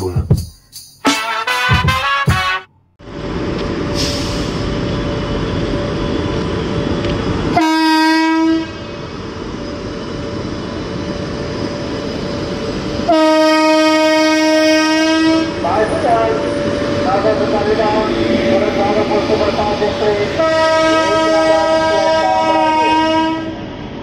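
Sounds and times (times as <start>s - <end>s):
locomotive horn blast: 1.0s - 2.7s, 7.5s - 8.9s, 13.0s - 19.3s, 19.9s - 23.6s
train rumbling: 1.8s - 24.0s.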